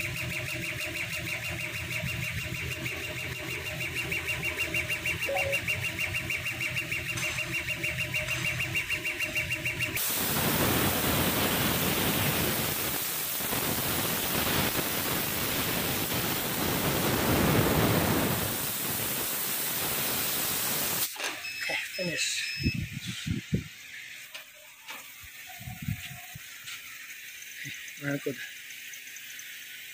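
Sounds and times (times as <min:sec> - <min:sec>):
laser cutter motors whining: 0:00.0 - 0:20.2
steady rushing hiss: 0:10.0 - 0:21.2, 0:23.0 - 0:29.9.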